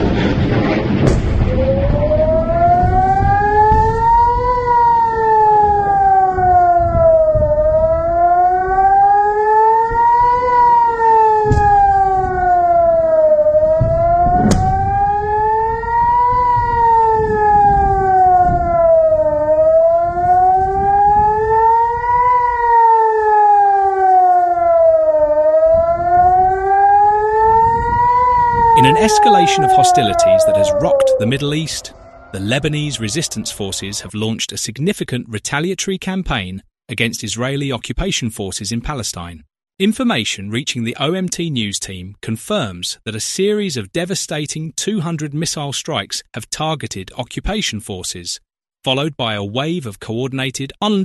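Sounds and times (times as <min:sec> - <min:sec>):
low rumble: 0:00.0 - 0:04.0, 0:13.6 - 0:16.7, 0:30.2 - 0:34.4
air-raid siren wailing: 0:00.0 - 0:34.5.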